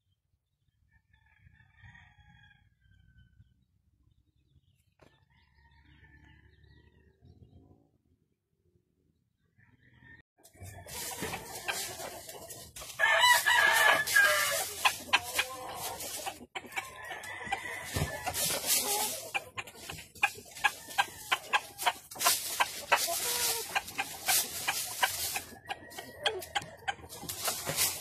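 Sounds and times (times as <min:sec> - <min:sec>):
chicken clucking: 0:10.4 - 0:28.0
chickens scratching in dry leaves: 0:10.5 - 0:28.0
rooster crowing: 0:13.0 - 0:15.6, 0:17.0 - 0:18.8.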